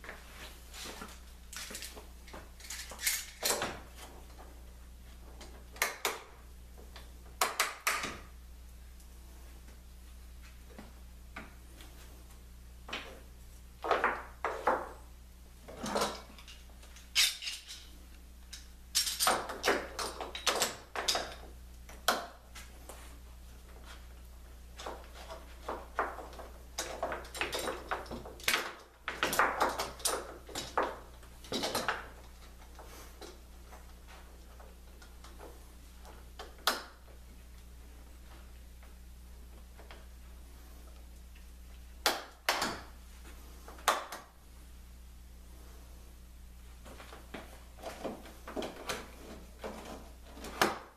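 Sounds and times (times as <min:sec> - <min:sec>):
metal clamps clinking and rattling: 0:02.6 - 0:03.7, 0:15.8 - 0:17.9, 0:18.5 - 0:19.4.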